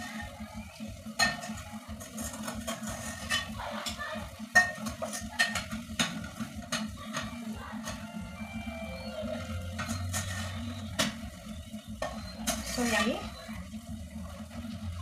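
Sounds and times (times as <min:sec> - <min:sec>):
metal spoon scraping a pot: 0:09.8 - 0:10.6.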